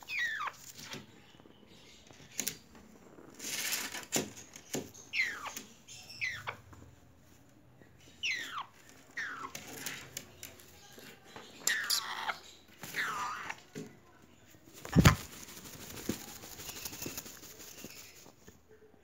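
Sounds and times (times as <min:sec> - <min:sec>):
parrot chicks calling: 0:00.0 - 0:00.7, 0:05.0 - 0:06.6, 0:08.2 - 0:09.8, 0:11.6 - 0:13.6.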